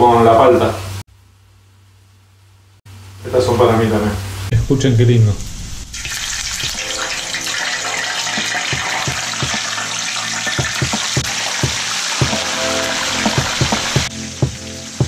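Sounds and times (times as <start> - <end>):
oil popping and crackling: 5.6 - 14.1
oil sizzling in a pan: 5.8 - 15.0.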